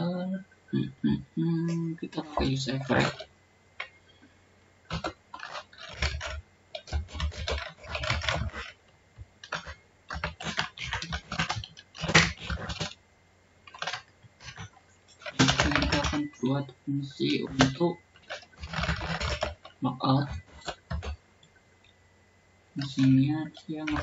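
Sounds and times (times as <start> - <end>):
typing on keyboard: 4.9 - 8.8, 9.4 - 13.0, 13.7 - 16.4, 17.3 - 21.2, 22.8 - 24.0.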